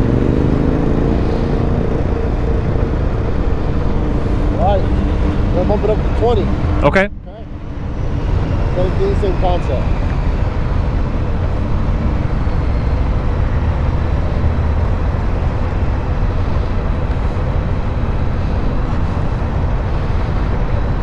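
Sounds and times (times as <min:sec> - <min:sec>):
motorcycle engine rumbling: 0:00.0 - 0:21.0.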